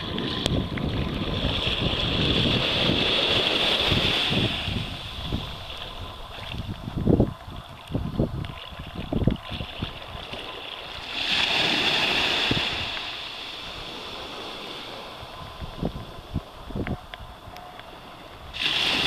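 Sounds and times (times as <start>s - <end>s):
shallow water washing: 0.0s - 19.0s
hissing rush of water: 10.9s - 19.0s.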